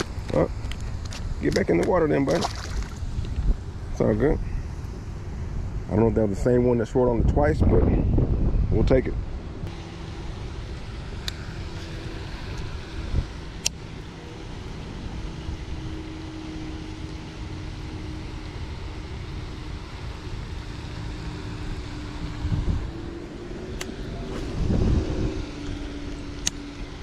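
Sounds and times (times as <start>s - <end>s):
wind buffeting microphone: 0.0s - 9.7s, 10.6s - 13.5s, 21.6s - 26.8s
faint steady hum: 0.0s - 27.0s.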